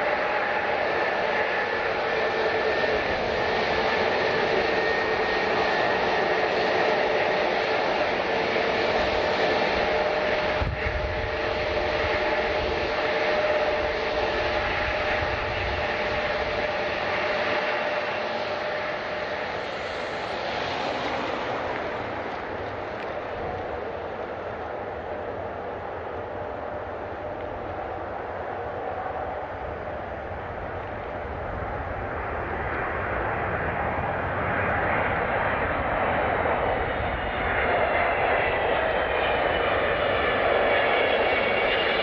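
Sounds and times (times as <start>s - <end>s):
whining tones: 0.0s - 33.2s
jet engines running: 0.0s - 42.0s.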